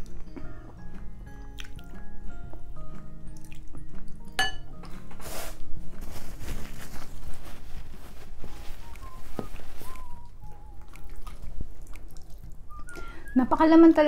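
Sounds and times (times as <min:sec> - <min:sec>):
chewing and mouth noises: 0:00.0 - 0:05.1, 0:09.9 - 0:13.0
soft background music: 0:00.0 - 0:14.0
paper tissue rustling: 0:05.2 - 0:10.8.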